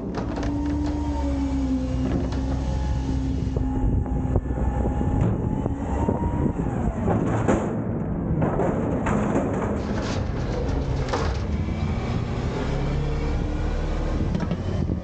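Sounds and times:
garbage truck engine and hydraulics: 0.0 - 15.0
metal clanks and knocks: 7.0 - 11.6.

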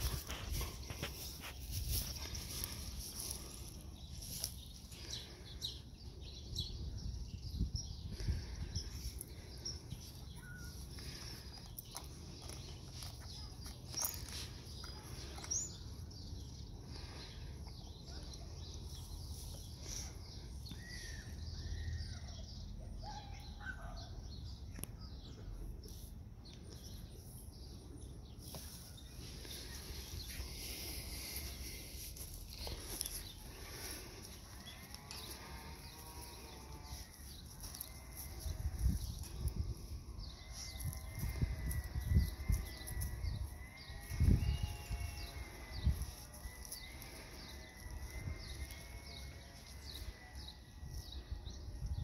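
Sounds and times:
faint bird chirps: 9.6 - 10.9.

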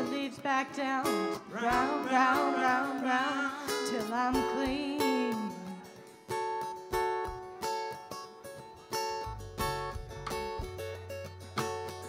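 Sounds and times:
person singing: 0.0 - 6.0
guitar strumming chords: 0.0 - 12.0
bass line: 9.2 - 12.0.

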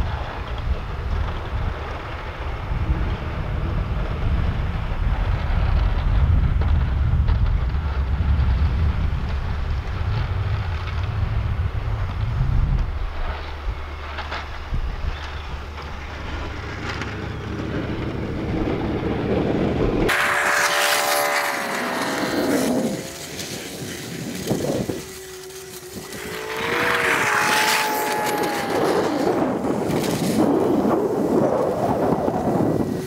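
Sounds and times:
snow plow pushing snow: 0.0 - 33.0
wind rumble on microphone: 0.0 - 33.0
truck engine revving: 15.7 - 30.0.

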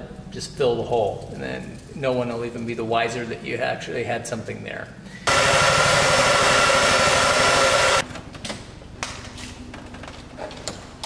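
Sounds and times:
hair dryer blowing: 5.3 - 8.0.

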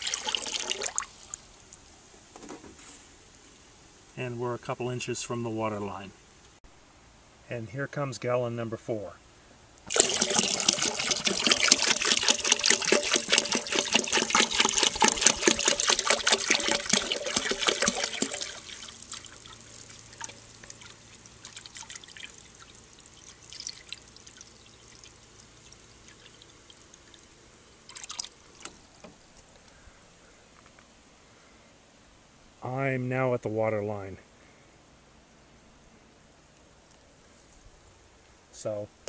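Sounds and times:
water pouring into toilet tank: 0.0 - 1.3, 9.9 - 28.7.

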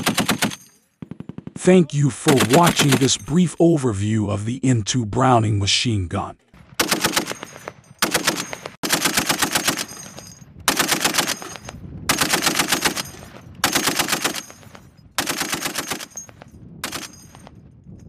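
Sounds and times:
heavy machine gun firing bursts: 0.0 - 1.7, 2.3 - 3.2, 6.7 - 10.1, 10.7 - 14.6, 15.2 - 16.2, 16.8 - 17.2.

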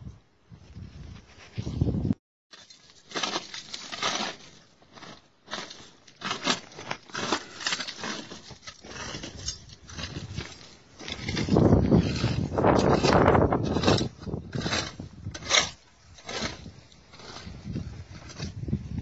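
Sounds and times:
stones and dirt crunching: 2.5 - 19.0.

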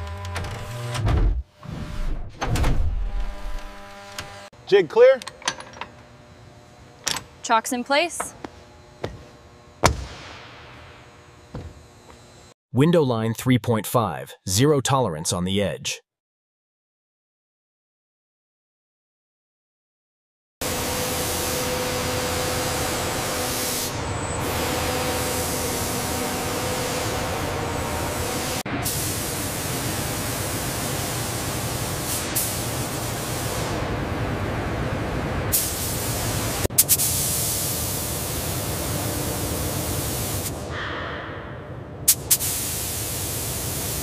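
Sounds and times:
paint sprayer hissing: 23.4 - 33.7, 35.5 - 40.6, 42.1 - 44.0.

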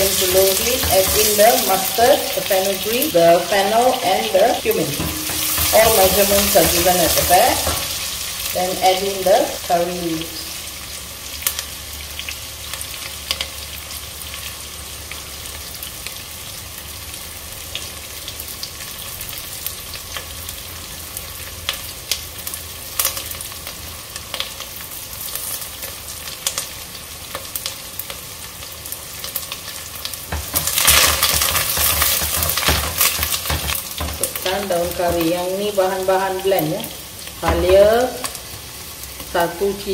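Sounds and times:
spatula stirring pot: 0.0 - 2.4, 4.8 - 8.1, 30.3 - 35.4
onions sizzling in oil: 0.0 - 39.9.

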